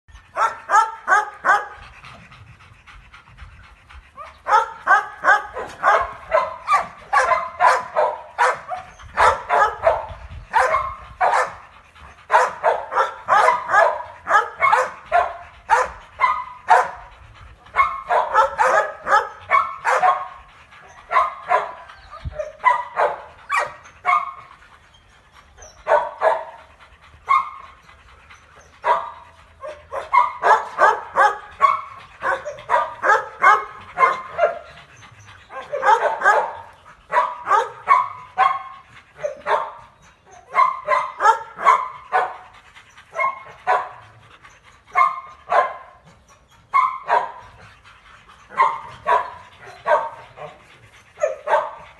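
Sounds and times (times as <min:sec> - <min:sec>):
dogs barking: 0:00.2 - 0:51.9.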